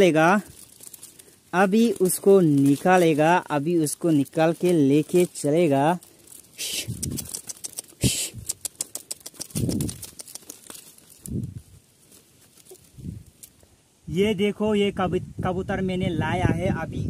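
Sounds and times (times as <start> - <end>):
bamboo bird house creaking: 0.0 - 11.6
quick clicks: 6.3 - 11.3.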